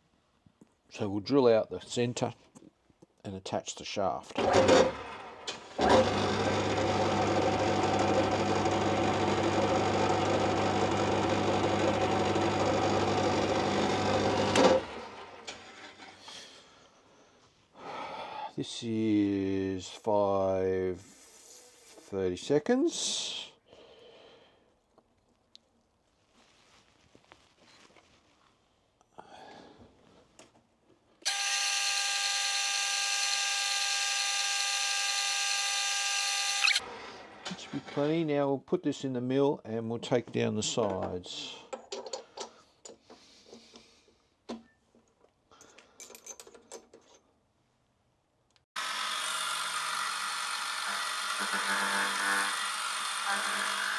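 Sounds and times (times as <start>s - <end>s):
metal lathe motor hum: 5.8s - 15.4s, 48.8s - 53.9s.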